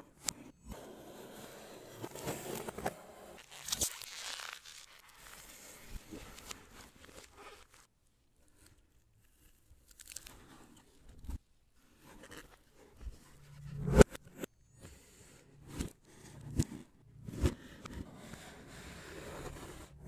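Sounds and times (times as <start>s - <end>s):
packaging rustling and crinkling: 3.4s - 7.9s.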